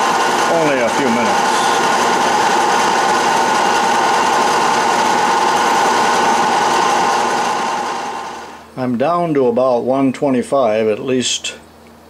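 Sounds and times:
metal lathe running: 0:00.0 - 0:08.7.

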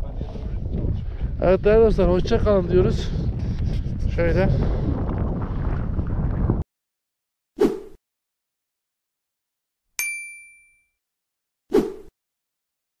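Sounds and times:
bright bell-like ding: 0:10.0 - 0:11.0.

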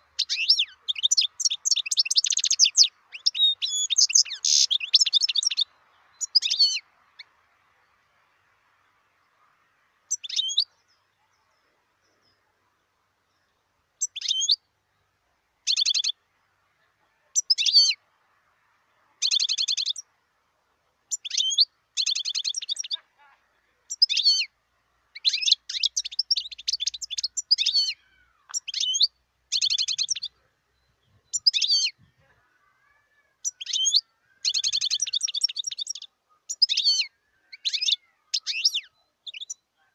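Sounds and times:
goldfinch twittering song: 0:00.0 - 0:08.4, 0:10.1 - 0:12.4, 0:13.2 - 0:14.7, 0:15.6 - 0:16.2, 0:17.3 - 0:18.0, 0:19.2 - 0:20.1, 0:21.1 - 0:23.1, 0:23.9 - 0:32.2, 0:33.4 - 0:39.8.

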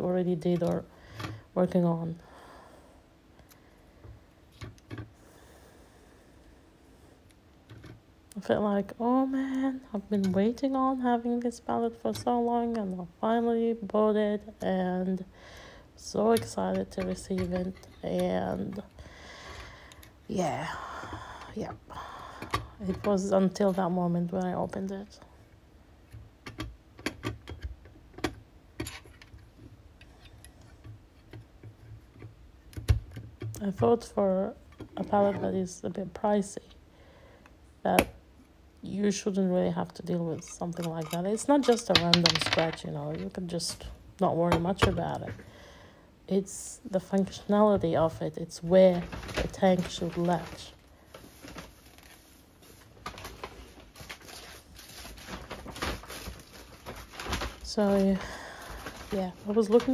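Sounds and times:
small objects clicking and knocking: 0:40.4 - 0:42.8.

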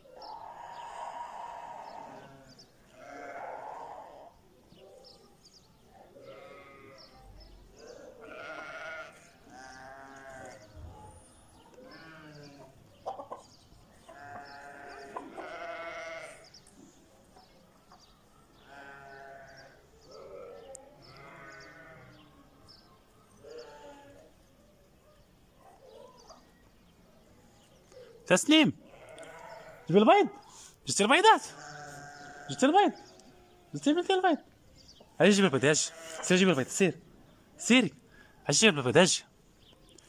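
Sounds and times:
livestock bleating: 0:00.5 - 0:04.4, 0:06.2 - 0:10.7, 0:11.7 - 0:12.8, 0:14.0 - 0:16.6, 0:18.6 - 0:22.5, 0:23.4 - 0:24.3, 0:28.8 - 0:30.1, 0:31.4 - 0:33.8, 0:35.2 - 0:36.8.

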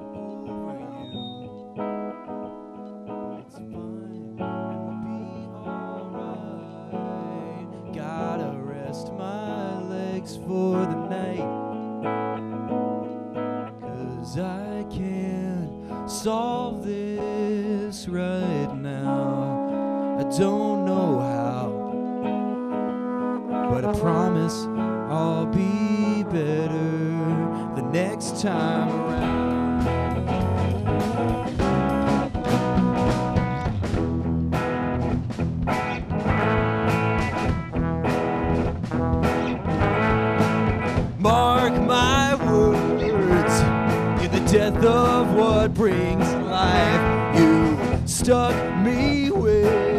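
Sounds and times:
trombone line: 0:00.0 - 0:01.5, 0:18.8 - 0:35.0, 0:35.7 - 0:49.9
bass guitar: 0:00.0 - 0:49.9
electric guitars: 0:00.0 - 0:49.9
live rock band playing: 0:00.0 - 0:49.9
drum kit: 0:28.6 - 0:49.9.

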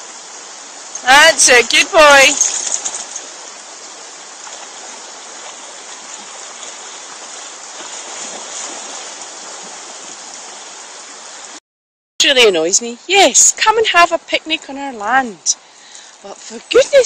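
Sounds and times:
river rushing over rocks: 0:00.0 - 0:11.6
dog splashing through water: 0:02.3 - 0:03.4, 0:04.4 - 0:10.7.

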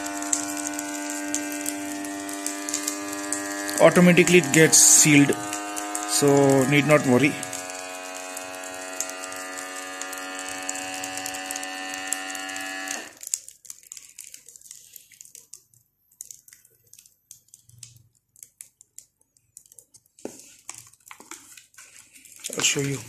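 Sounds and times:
vacuum sealer pump humming: 0:00.0 - 0:13.2
faint clicks and crackles: 0:00.0 - 0:23.0.

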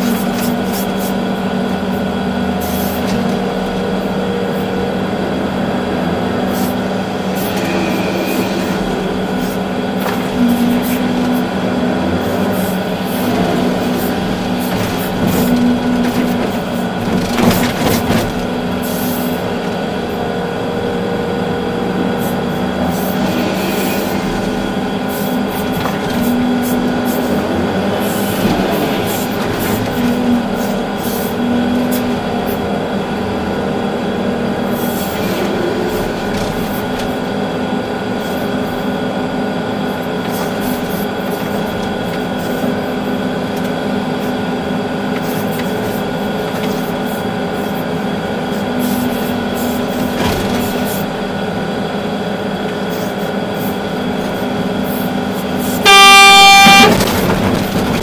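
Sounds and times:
excavator engine droning: 0:00.0 - 0:58.0
rattles and knocks: 0:13.1 - 0:18.8.

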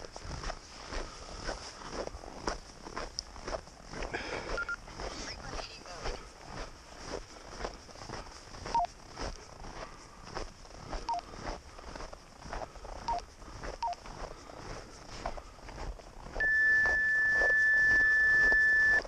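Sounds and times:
crunching through snow: 0:00.0 - 0:19.0
high electronic beep: 0:04.6 - 0:05.4, 0:08.7 - 0:08.9, 0:16.4 - 0:19.0.

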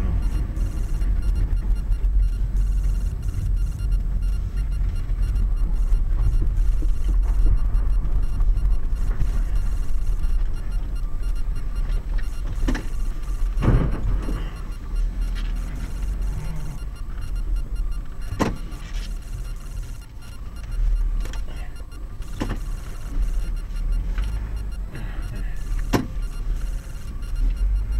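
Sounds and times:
sharp thumps: 0:00.0 - 0:21.5
road and engine rumble in car: 0:00.0 - 0:27.9.

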